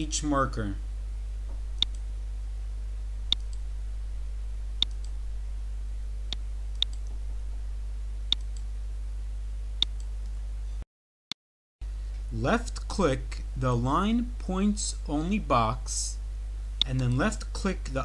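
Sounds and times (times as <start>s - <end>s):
low hum: 0.0s - 10.8s
computer mouse clicking: 1.8s - 2.0s, 3.3s - 3.6s, 4.8s - 5.2s, 6.3s - 7.2s.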